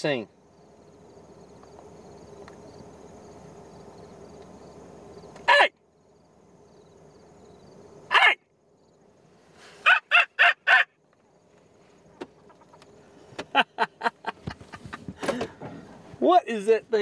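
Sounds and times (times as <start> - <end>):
grouse clucking: 9.7 - 11.0, 12.0 - 15.2.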